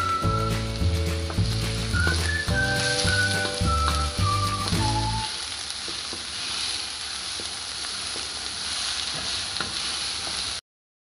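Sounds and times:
onion sizzling in hot oil: 0:00.0 - 0:10.6
wooden spatula scraping a pan: 0:05.9 - 0:10.6.

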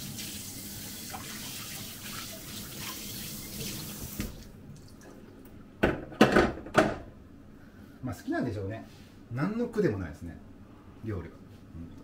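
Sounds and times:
tap running into metal sink: 0:03.6 - 0:04.5.

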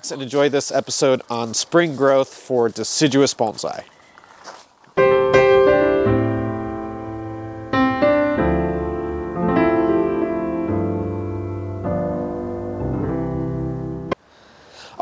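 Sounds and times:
keyboard chords: 0:05.0 - 0:14.2.

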